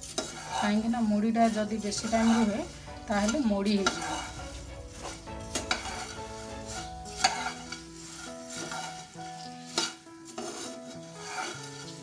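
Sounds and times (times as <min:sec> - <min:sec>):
spatula clacking on pan: 0:00.0 - 0:00.6, 0:05.0 - 0:09.0, 0:09.6 - 0:11.9
dry puffed rice rustling: 0:00.0 - 0:12.0
soft instrumental music: 0:00.0 - 0:12.0.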